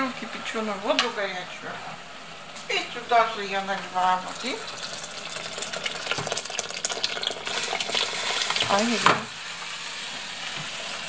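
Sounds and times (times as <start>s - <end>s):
food sizzling: 0.0s - 11.0s
water pouring into hot oil: 4.2s - 9.1s.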